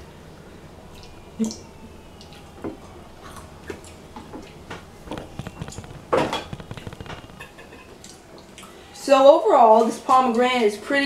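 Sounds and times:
chewing crunches: 0:03.2 - 0:08.7.

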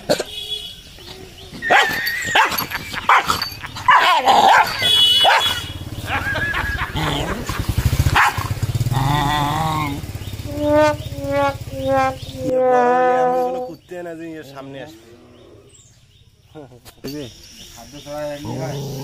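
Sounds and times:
motorcycle engine hum: 0:00.3 - 0:13.9
dog barking and snarling: 0:01.6 - 0:05.7, 0:06.9 - 0:10.0.

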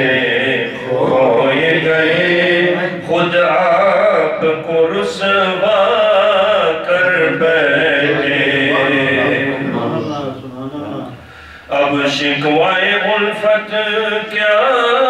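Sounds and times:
man singing: 0:00.0 - 0:15.0
short breaths: 0:11.2 - 0:11.7.

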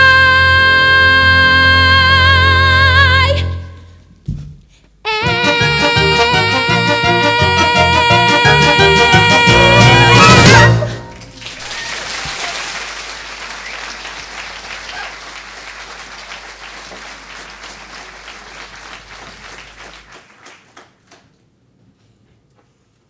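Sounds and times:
audience applauding: 0:07.6 - 0:21.3.

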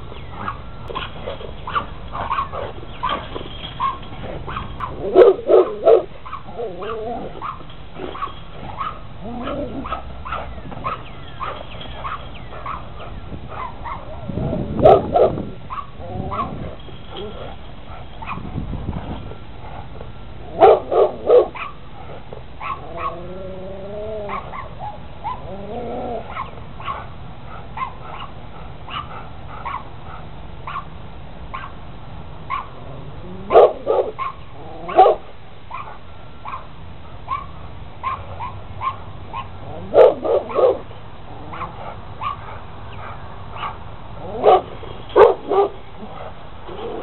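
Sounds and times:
dog yipping: 0:00.3 - 0:18.4, 0:20.6 - 0:21.8, 0:22.6 - 0:23.3, 0:24.1 - 0:28.3, 0:28.9 - 0:30.9, 0:31.5 - 0:31.8, 0:32.5 - 0:32.7, 0:33.5 - 0:36.7, 0:37.3 - 0:40.8, 0:41.5 - 0:47.0
dog barking: 0:00.4 - 0:14.1, 0:14.8 - 0:16.6, 0:20.5 - 0:21.8, 0:22.6 - 0:23.3, 0:26.3 - 0:30.9, 0:31.5 - 0:31.8, 0:32.5 - 0:32.7, 0:33.5 - 0:36.7, 0:37.3 - 0:40.9, 0:41.5 - 0:47.0
dog whining: 0:01.7 - 0:12.8, 0:22.8 - 0:26.4.

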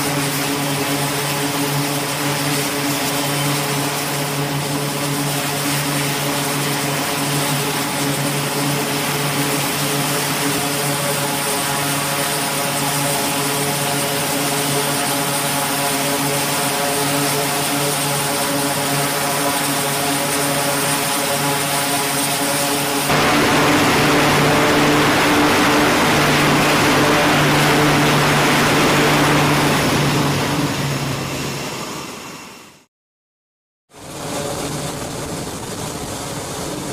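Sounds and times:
turboprop engines droning: 0:18.3 - 0:32.8
thin high whine: 0:23.1 - 0:30.4.

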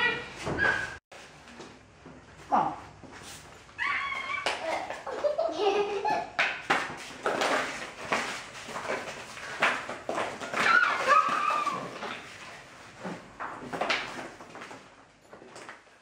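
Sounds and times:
children squealing and laughing: 0:03.8 - 0:06.4, 0:10.5 - 0:12.2
plastic toys clattering on floor: 0:06.7 - 0:12.4.

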